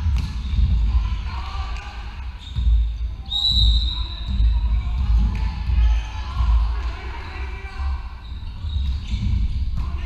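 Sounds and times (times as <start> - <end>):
volleyball bouncing on wooden floor: 0.0 - 0.9.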